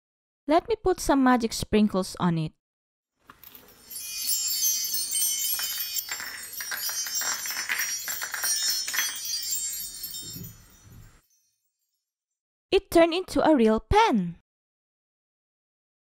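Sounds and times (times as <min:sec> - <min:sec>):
twinkling magic sound effect: 0:03.4 - 0:12.1.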